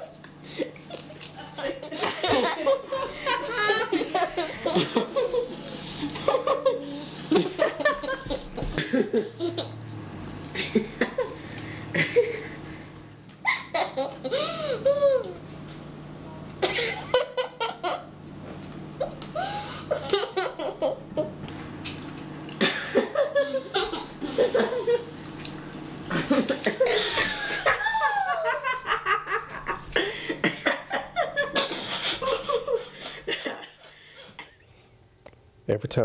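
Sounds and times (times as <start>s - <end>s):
man laughing heartily: 1.4s - 9.8s, 10.5s - 15.3s, 19.0s - 21.3s, 22.6s - 25.1s, 26.1s - 34.2s
young girl giggling: 1.4s - 9.8s, 10.6s - 12.6s, 13.4s - 15.4s, 16.6s - 18.1s, 19.0s - 21.4s, 22.6s - 25.1s, 26.1s - 33.9s.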